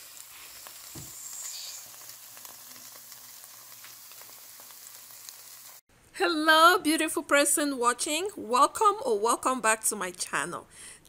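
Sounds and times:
chicken wings sizzling: 0.0 - 5.8.

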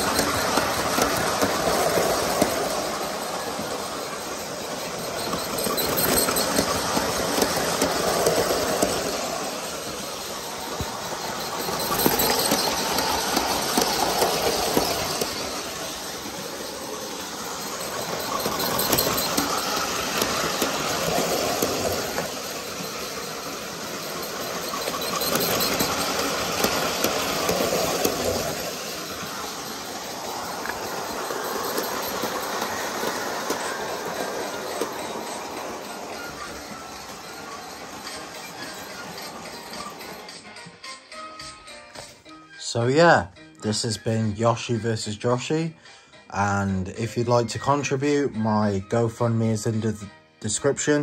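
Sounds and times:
model train motor whirring: 0.0 - 40.5
train clicking over rails: 0.0 - 42.1.

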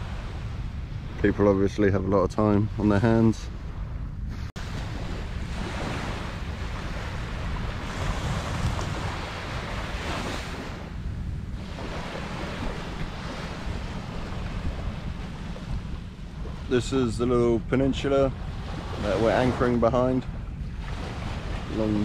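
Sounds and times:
wind buffeting the microphone: 0.0 - 22.0
small waves breaking on beach: 4.3 - 11.0, 11.6 - 22.0.

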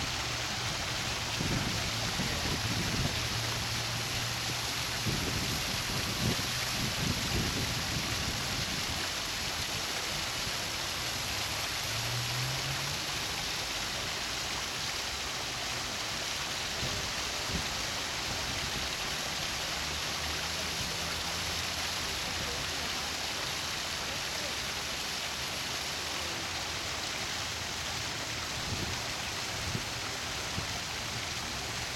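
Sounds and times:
waterfall splashing over rocks: 0.0 - 31.9.

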